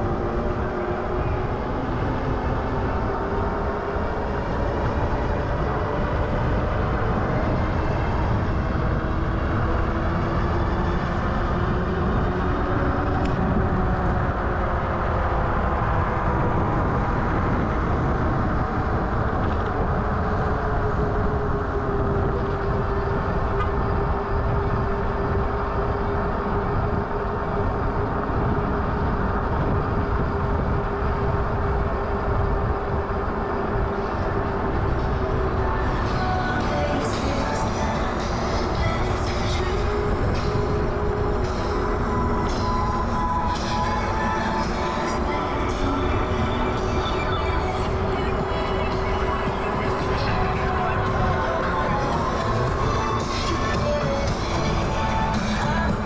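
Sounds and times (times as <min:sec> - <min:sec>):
wind on microphone: 0:00.0 - 0:56.0.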